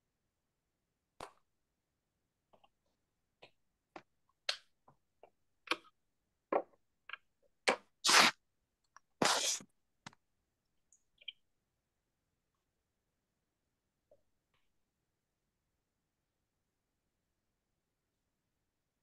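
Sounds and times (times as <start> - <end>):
scraping noises: 9.2 - 9.6.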